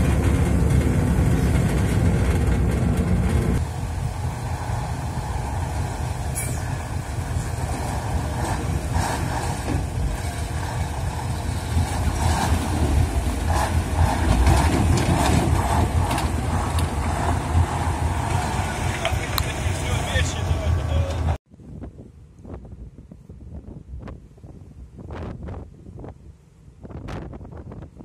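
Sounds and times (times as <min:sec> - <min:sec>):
heavy vehicle engine rumble: 0:00.0 - 0:21.4
rattles and knocks: 0:07.5 - 0:19.2.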